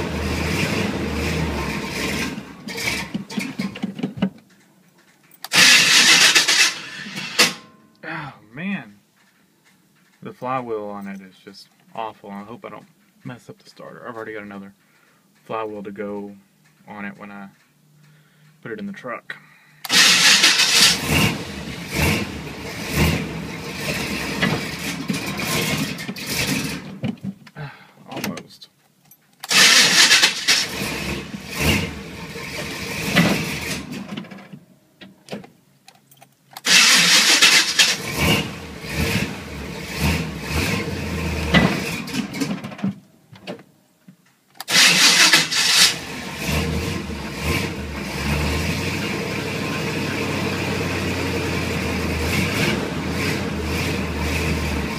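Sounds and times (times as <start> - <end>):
harsh starter motor grinding: 0.3 - 3.8, 5.4 - 7.6, 19.8 - 26.9, 29.4 - 34.1, 36.6 - 42.5, 44.6 - 54.9.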